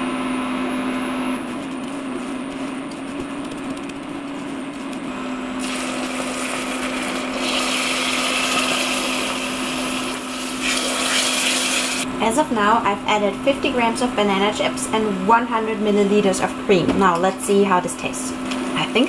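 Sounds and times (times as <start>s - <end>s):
steady hum: 0.0s - 19.0s
cream hissing and bubbling in pan: 1.4s - 12.1s.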